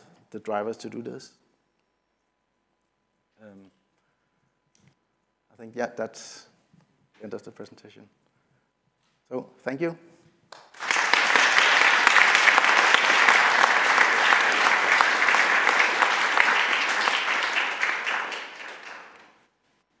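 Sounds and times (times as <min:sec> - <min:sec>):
audience applauding: 0:10.6 - 0:19.4.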